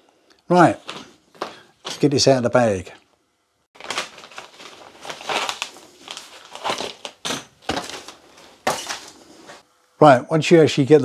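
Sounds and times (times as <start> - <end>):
plastic packaging crinkling: 3.8 - 9.4.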